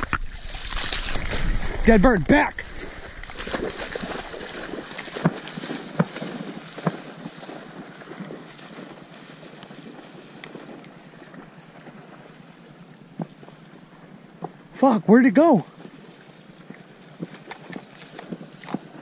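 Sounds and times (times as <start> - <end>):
dog splashing in water: 0.0 - 1.9, 2.6 - 12.4
wind noise on microphone: 0.0 - 5.7.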